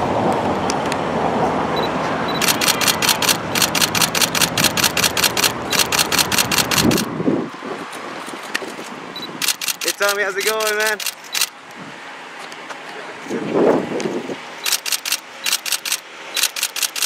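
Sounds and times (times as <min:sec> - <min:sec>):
car and street noise: 0:00.0 - 0:17.0
camera shutters clicking: 0:02.4 - 0:07.1, 0:08.4 - 0:11.6, 0:14.6 - 0:17.0.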